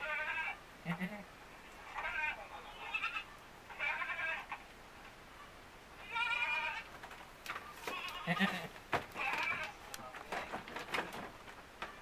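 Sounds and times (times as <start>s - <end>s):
goat kid bleating: 0.0s - 4.6s, 6.0s - 6.9s, 7.8s - 9.9s.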